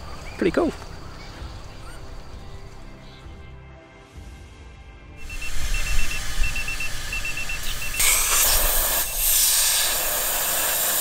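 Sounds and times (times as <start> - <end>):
high electronic beeps: 5.2 - 9.5
air hissing out of tyre: 5.2 - 11.0.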